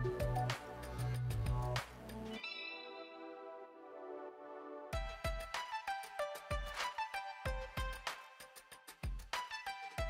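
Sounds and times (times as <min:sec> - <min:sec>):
low beat: 0:00.0 - 0:01.8.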